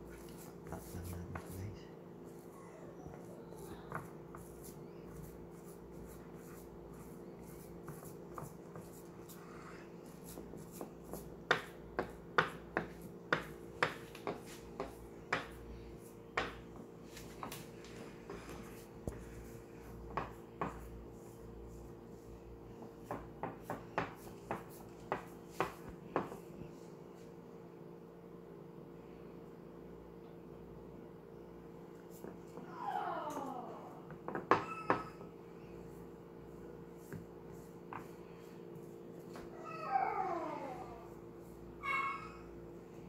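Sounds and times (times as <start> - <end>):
steady low hum: 0.0 - 34.3.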